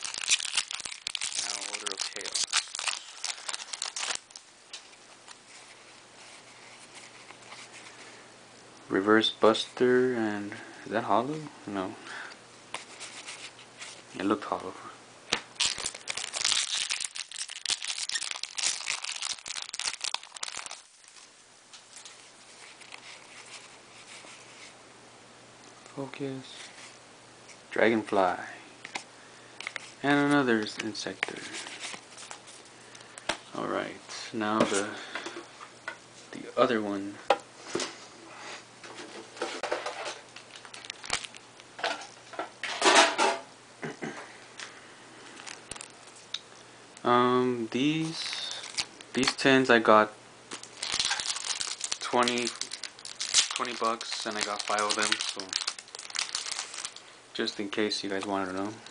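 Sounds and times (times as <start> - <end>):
foil pack tearing and crinkling: 0.0 - 4.4, 15.5 - 21.3, 39.6 - 41.4, 45.4 - 46.2, 48.0 - 49.4, 50.5 - 57.0
cards being handled: 0.0 - 8.0, 28.8 - 33.4, 50.5 - 57.0.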